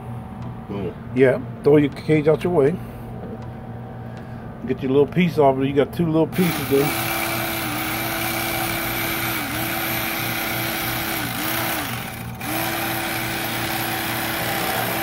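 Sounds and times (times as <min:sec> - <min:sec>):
electric carving knife running: 0:06.4 - 0:15.0.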